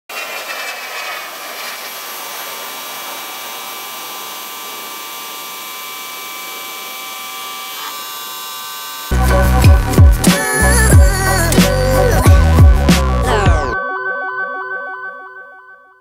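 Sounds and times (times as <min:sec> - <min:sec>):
water spraying on concrete: 0:00.1 - 0:07.0
pressure washer whining: 0:00.1 - 0:13.8.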